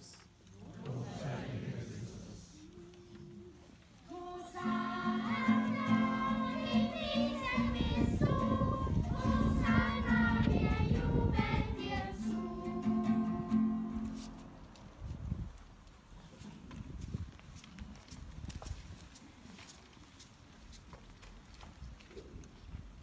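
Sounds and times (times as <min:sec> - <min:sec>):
group singing a hymn: 0:00.6 - 0:03.4, 0:04.0 - 0:14.6
held accompanying note: 0:04.5 - 0:11.1.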